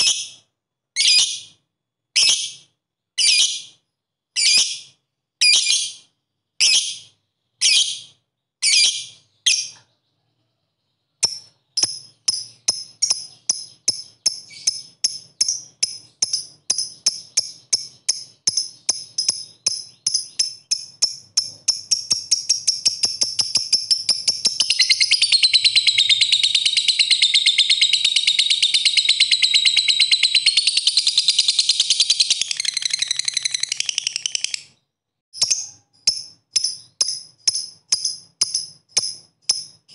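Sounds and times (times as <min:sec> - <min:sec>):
lovebird chirping: 0:00.0 - 0:01.6, 0:02.2 - 0:39.9
lovebird rapid chatter: 0:11.2 - 0:34.8.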